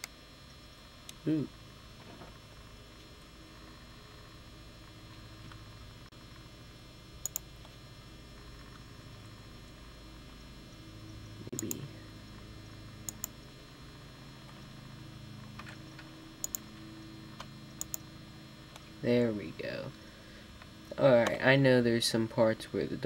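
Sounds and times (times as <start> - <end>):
low steady hum: 0.0 - 23.0
computer mouse clicks: 7.2 - 7.5, 11.6 - 11.9, 13.0 - 13.4, 15.6 - 16.6, 17.4 - 18.0.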